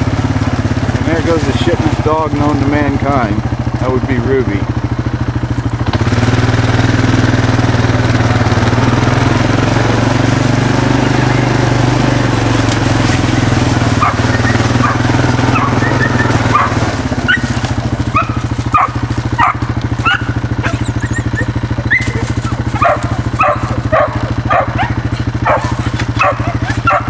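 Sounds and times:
engine idling: 0:00.0 - 0:27.0
dogs barking: 0:08.8 - 0:27.0.

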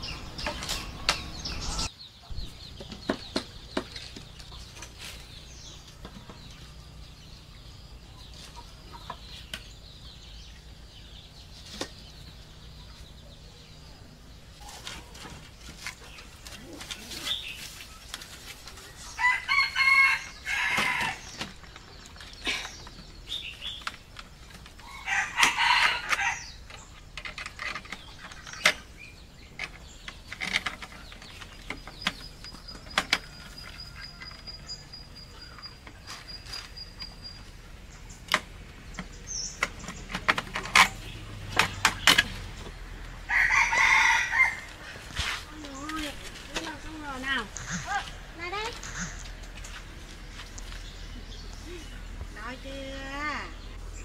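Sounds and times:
chickens calling: 0:00.0 - 0:54.0
wooden poles knocking: 0:02.7 - 0:05.0, 0:38.2 - 0:42.8
rooster crowing: 0:19.2 - 0:21.3, 0:24.8 - 0:26.5, 0:43.2 - 0:44.8.

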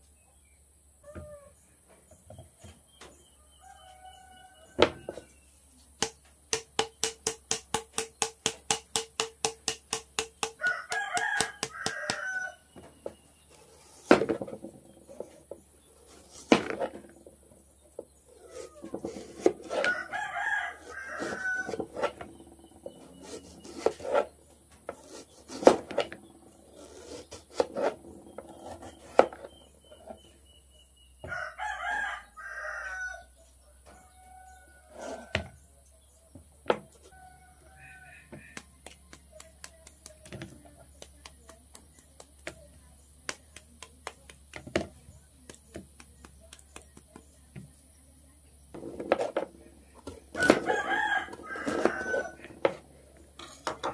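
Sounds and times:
rooster crowing: 0:03.4 - 0:05.2, 0:10.6 - 0:12.7, 0:19.7 - 0:22.0, 0:31.2 - 0:33.3, 0:33.9 - 0:35.5, 0:37.0 - 0:38.6, 0:50.3 - 0:52.8
knife cutting on plastic tray: 0:18.4 - 0:20.0, 0:23.0 - 0:24.3, 0:24.9 - 0:29.4.

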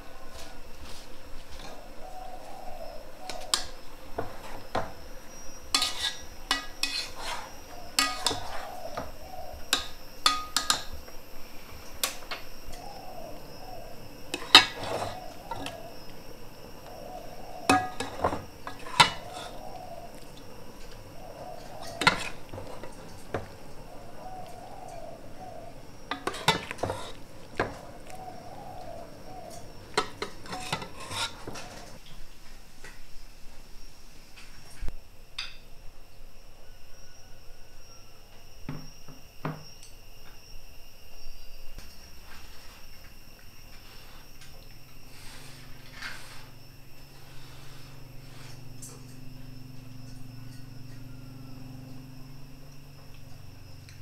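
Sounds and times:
metal spoon scraping pot: 0:05.7 - 0:11.0, 0:14.3 - 0:15.9, 0:17.7 - 0:19.8, 0:21.6 - 0:23.1, 0:26.1 - 0:27.2, 0:29.5 - 0:32.0.

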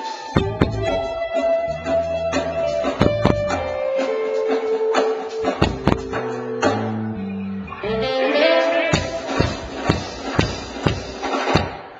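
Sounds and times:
band playing amplified music: 0:00.0 - 0:11.8
drum hits: 0:00.4 - 0:01.2, 0:01.8 - 0:03.8, 0:05.4 - 0:06.9, 0:09.0 - 0:11.9.

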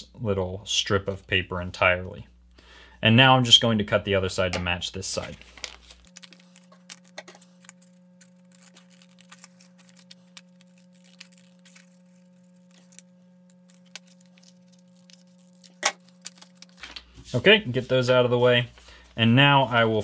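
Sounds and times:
faint low hum: 0:00.0 - 0:20.0
scissors snipping paper: 0:06.1 - 0:16.9.

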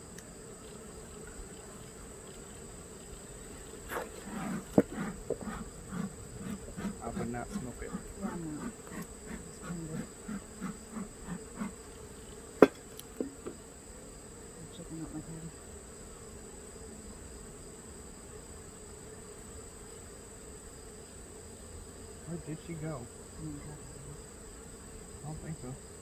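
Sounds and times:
bees buzzing: 0:00.0 - 0:26.0
sharp knock: 0:12.6 - 0:13.4.

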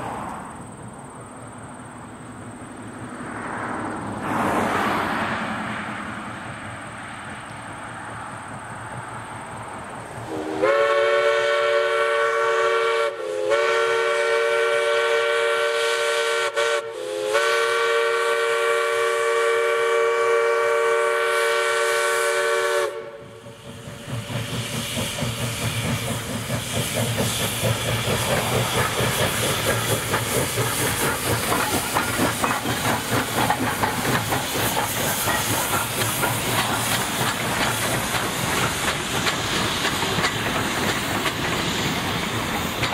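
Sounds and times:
steam hissing: 0:09.6 - 0:42.9
steam locomotive whistle blasts: 0:10.3 - 0:23.7
locomotive exhaust chuffing: 0:17.0 - 0:42.9.

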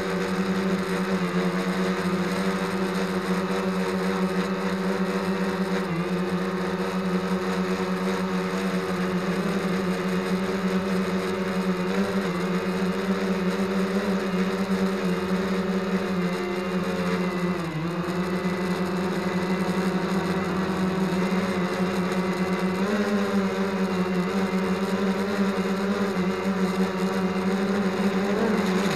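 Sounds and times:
drone propellers humming: 0:00.0 - 0:28.9.

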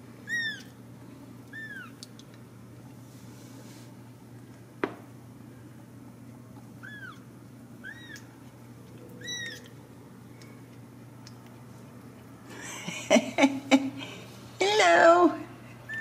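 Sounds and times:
kittens mewing: 0:00.3 - 0:00.7, 0:01.5 - 0:02.0, 0:06.8 - 0:07.2, 0:07.8 - 0:08.4.

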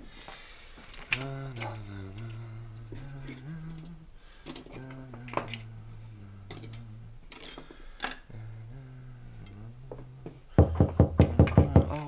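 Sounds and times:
cutlery and glassware clinking: 0:03.4 - 0:04.9, 0:06.5 - 0:08.3.

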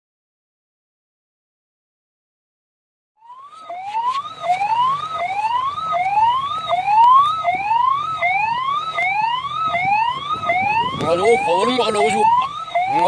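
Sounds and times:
siren wailing in rising whoops: 0:03.2 - 0:13.0.

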